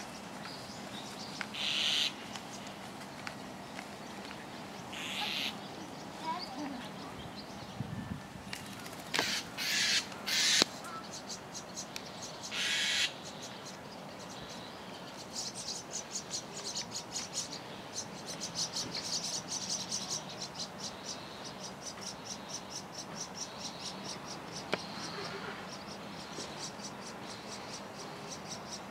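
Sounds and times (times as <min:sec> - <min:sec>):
starling harsh raspy calls: 0:01.5 - 0:02.2, 0:04.9 - 0:05.7, 0:09.1 - 0:11.2, 0:12.4 - 0:13.6.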